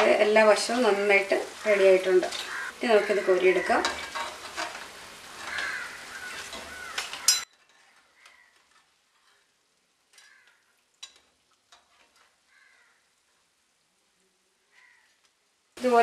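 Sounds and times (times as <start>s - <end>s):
hot oil sizzling: 0.0s - 16.0s
metal spatula scraping pan: 2.2s - 8.1s, 11.0s - 12.4s.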